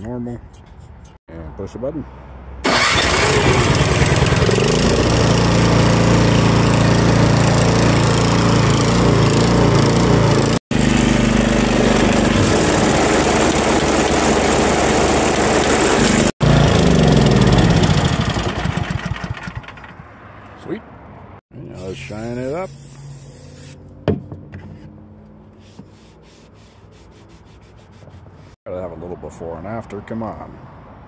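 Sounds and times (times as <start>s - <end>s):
electric starter: 2.6s - 19.9s
snowblower engine running: 2.6s - 19.9s
engine winding down: 2.6s - 20.0s
auger spinning: 9.9s - 19.7s.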